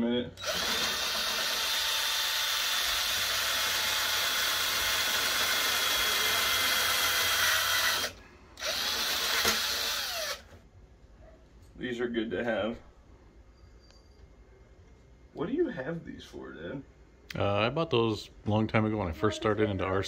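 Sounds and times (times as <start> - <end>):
cordless drill whining: 0.4 - 10.6.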